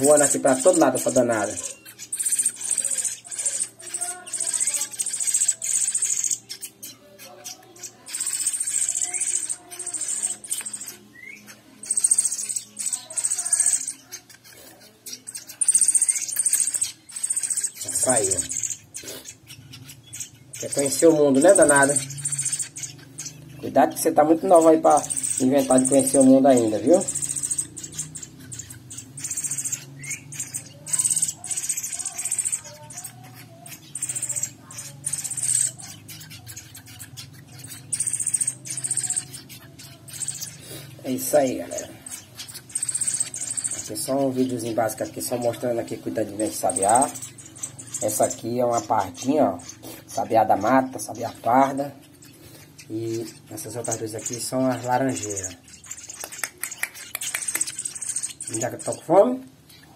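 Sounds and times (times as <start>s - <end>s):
thrush chicks begging calls: 0.0s - 59.9s
rising chirp: 15.5s - 32.8s, 37.0s - 59.0s.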